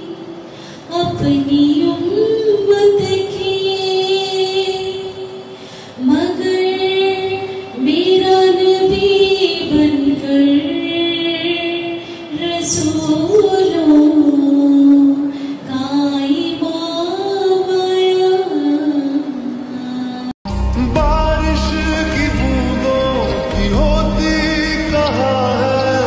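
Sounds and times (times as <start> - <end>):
singer breathing: 0.4 - 0.9, 5.5 - 6.0, 15.3 - 15.7.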